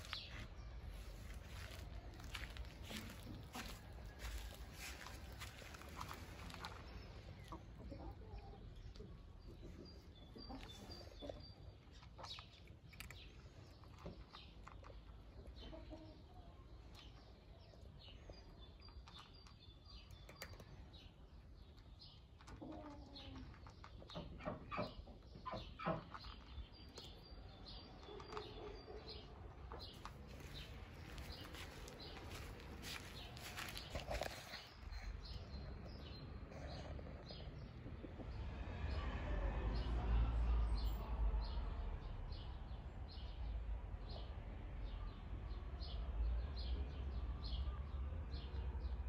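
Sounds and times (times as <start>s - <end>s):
cat crunching dry kibble: 0.0s - 7.5s, 10.6s - 15.6s, 16.7s - 24.1s, 26.0s - 35.9s
small birds chirping: 0.0s - 39.1s.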